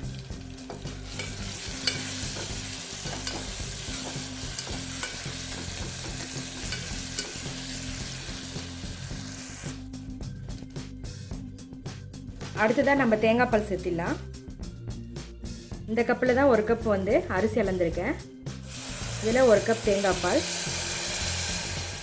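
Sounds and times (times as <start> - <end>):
vegetables sizzling in oil: 0.0 - 9.9, 18.6 - 22.0.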